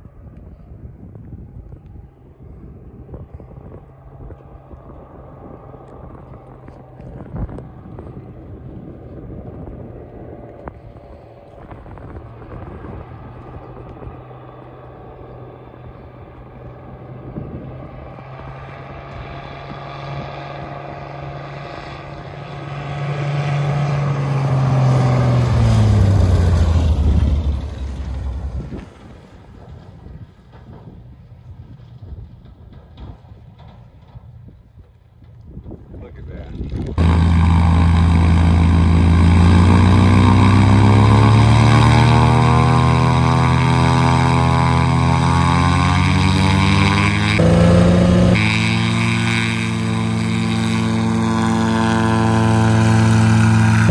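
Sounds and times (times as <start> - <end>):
propeller plane engine drone: 0.0 - 53.9.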